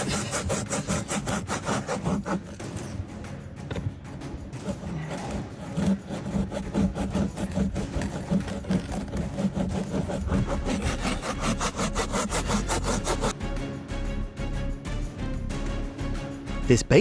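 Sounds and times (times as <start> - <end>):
hand saw cutting dry wood: 0.0 - 3.0, 4.5 - 13.4.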